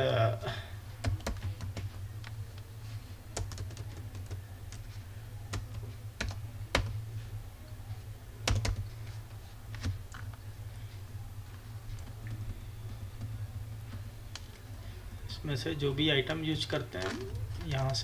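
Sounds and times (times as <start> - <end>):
low hum: 0.0 - 18.0
typing on keyboard: 1.0 - 2.0, 3.3 - 4.9, 8.4 - 8.9.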